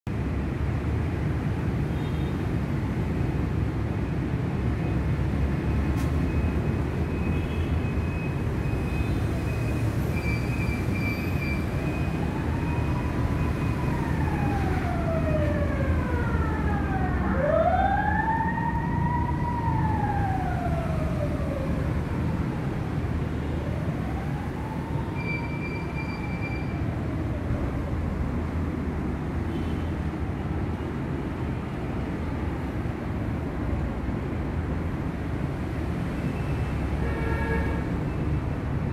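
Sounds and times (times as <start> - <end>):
siren wailing: 11.3 - 28.0.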